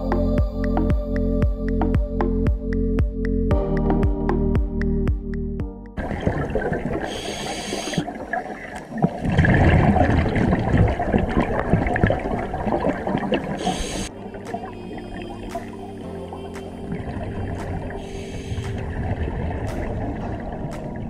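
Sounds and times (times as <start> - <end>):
exhaled air bubbling: 6.0 - 21.0
regulator breathing hiss: 7.1 - 8.1, 13.6 - 14.2, 18.0 - 18.9.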